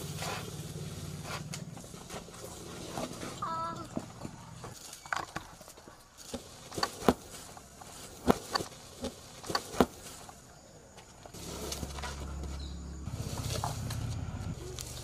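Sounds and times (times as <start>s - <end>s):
footsteps on hard dirt: 6.3s - 15.0s.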